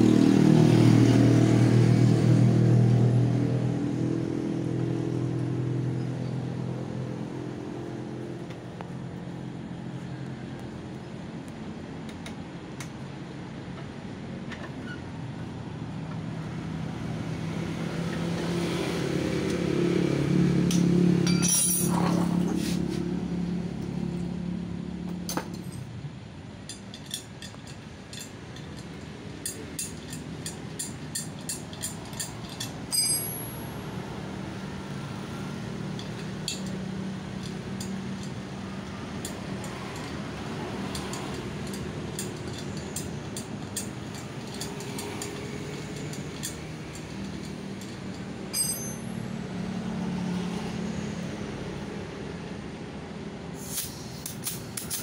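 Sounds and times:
light metallic wrench clinks: 0:20.7 - 0:22.2, 0:26.7 - 0:33.7, 0:36.0 - 0:36.8, 0:39.2 - 0:49.2, 0:54.2 - 0:55.0.

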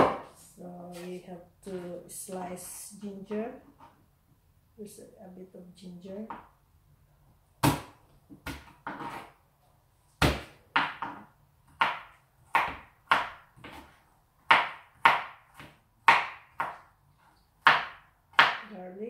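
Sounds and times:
knife chopping on cutting board: 0:00.0 - 0:00.3, 0:07.6 - 0:09.3, 0:10.2 - 0:16.9, 0:17.6 - 0:18.7.

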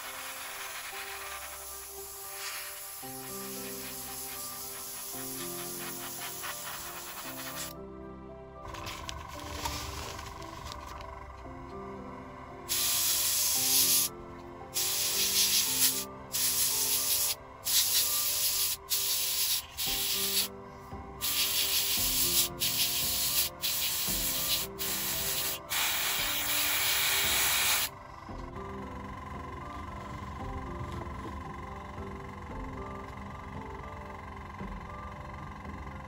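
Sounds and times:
airbrush air hiss: 0:00.0 - 0:07.8, 0:12.7 - 0:14.1, 0:14.7 - 0:20.5, 0:21.2 - 0:27.9
quiet background music: 0:00.0 - 0:36.0.

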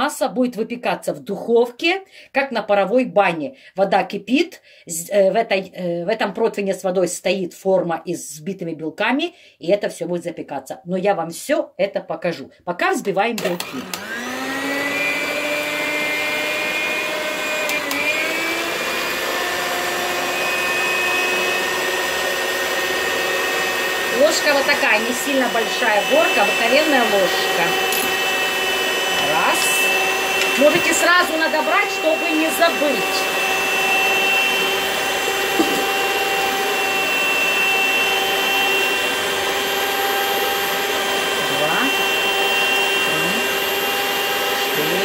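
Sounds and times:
electric mixer whipping: 0:13.2 - 0:45.0
mixer clicks: 0:13.4 - 0:15.4, 0:17.3 - 0:19.6, 0:27.4 - 0:31.0.

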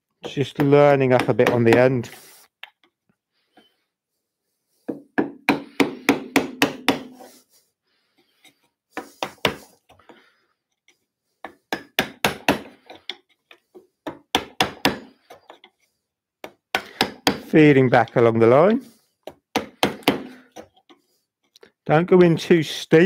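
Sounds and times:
mallet striking chisel into wood: 0:04.9 - 0:07.2, 0:11.4 - 0:12.8, 0:14.0 - 0:15.1, 0:16.4 - 0:17.5, 0:19.3 - 0:20.3.

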